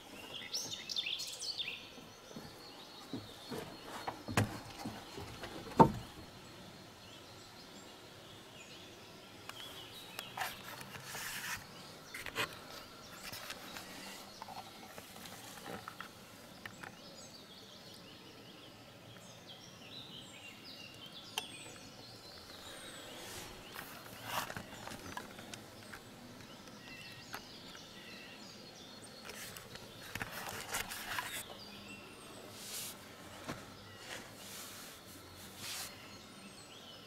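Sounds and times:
faint birds chirping: 0.0 - 37.0
rustling and knocks in wooden hide: 2.3 - 6.2.

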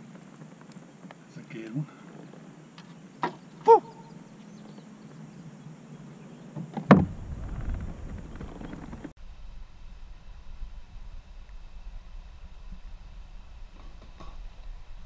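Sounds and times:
thump on kayak: 6.6 - 8.9
low rumble: 7.0 - 13.8.

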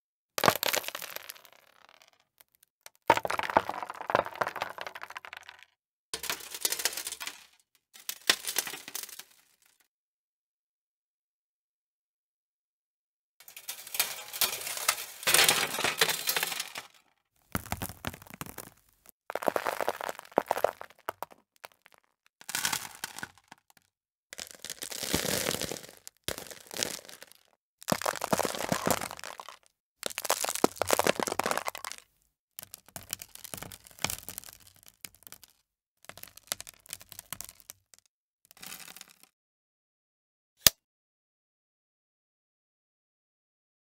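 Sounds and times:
gravel crunched by hand: 3.1 - 5.6, 17.5 - 23.8, 24.4 - 35.5.

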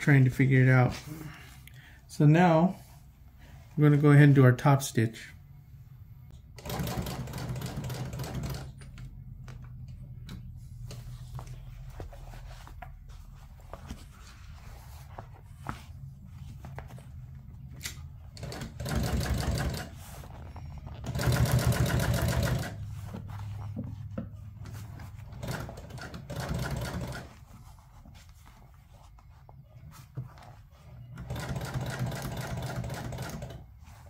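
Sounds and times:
sewing machine stitching: 6.6 - 9.1, 18.3 - 20.0, 21.0 - 22.8, 25.2 - 27.3, 31.1 - 33.6.

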